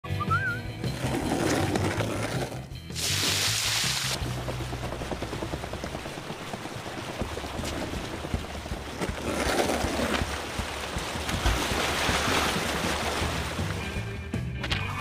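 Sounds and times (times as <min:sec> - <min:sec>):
cartoon water rushing and splashing: 0:02.9 - 0:04.2, 0:10.1 - 0:14.0.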